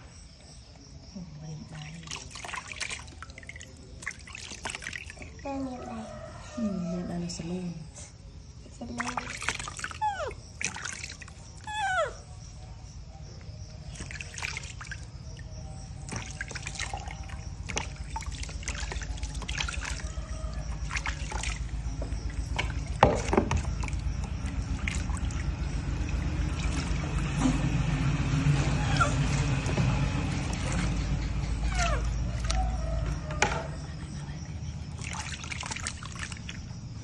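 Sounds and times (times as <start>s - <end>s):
water splashing in plastic tub: 1.4s - 6.7s, 8.6s - 12.5s, 13.4s - 37.0s
baby monkey squealing: 11.6s - 12.3s, 28.7s - 29.4s, 31.6s - 32.1s.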